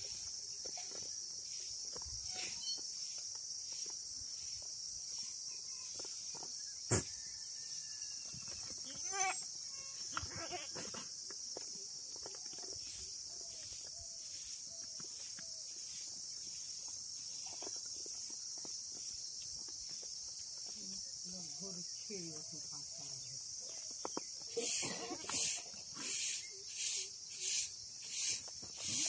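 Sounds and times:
high insect drone: 0:00.0 - 0:29.0
goat bleat: 0:08.9 - 0:10.9, 0:24.6 - 0:25.4.

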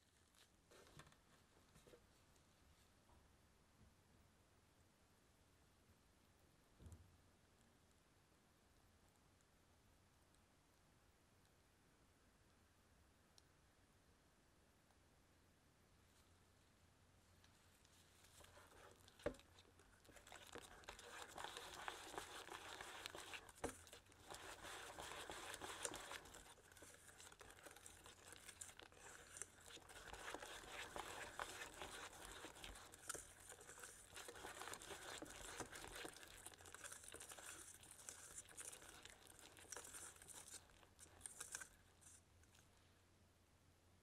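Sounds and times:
whisk scraping through batter: 0:18.2 - 0:42.2.

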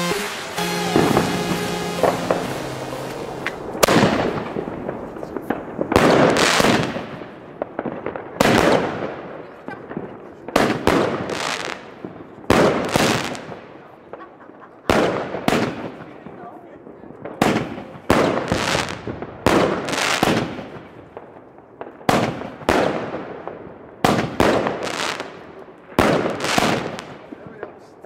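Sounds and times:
firework battery bangs: 0:00.0 - 0:09.1, 0:26.0 - 0:27.3.

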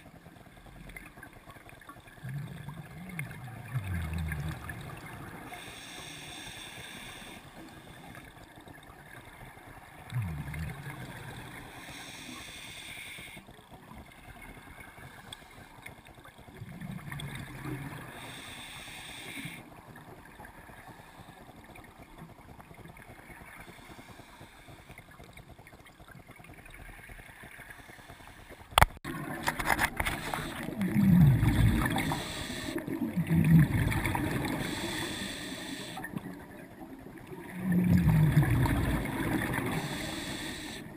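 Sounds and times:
bubbling of exhaled air: 0:02.0 - 0:40.9
scuba regulator hissing inhale: 0:05.4 - 0:08.2, 0:11.0 - 0:13.5, 0:15.0 - 0:16.0, 0:17.8 - 0:19.7, 0:23.6 - 0:25.1, 0:27.6 - 0:28.8, 0:30.0 - 0:33.4, 0:34.0 - 0:36.1, 0:38.7 - 0:40.9.

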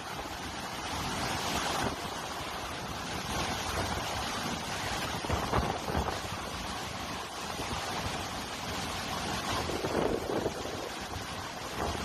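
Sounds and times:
hurricane wind and rain: 0:00.0 - 0:12.0
wind buffeting microphone: 0:03.0 - 0:12.0.

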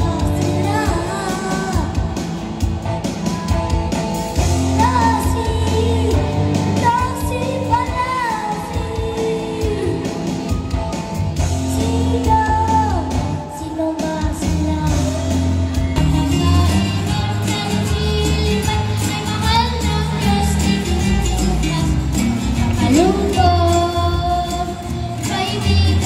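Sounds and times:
child singing into microphone: 0:00.0 - 0:02.1, 0:04.7 - 0:10.8, 0:11.7 - 0:15.2, 0:16.0 - 0:22.2, 0:22.8 - 0:26.0
backing music: 0:00.0 - 0:26.0.

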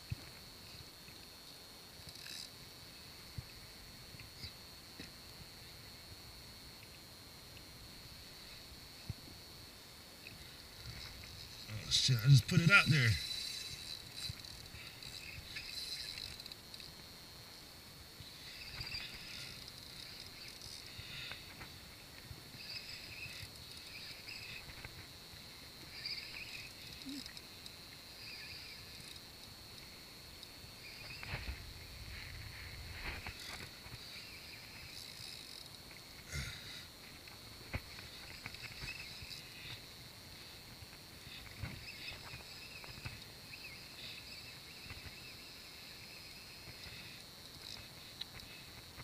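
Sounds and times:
faint high whine: 0:00.0 - 0:49.0
fishing reel buzzing: 0:01.9 - 0:04.6, 0:10.2 - 0:17.1, 0:18.2 - 0:29.8, 0:32.9 - 0:48.8.

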